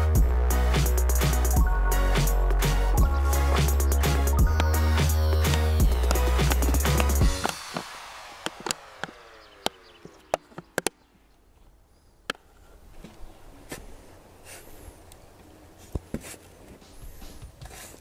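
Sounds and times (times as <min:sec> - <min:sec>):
sharp clicks: 0:05.4 - 0:11.0.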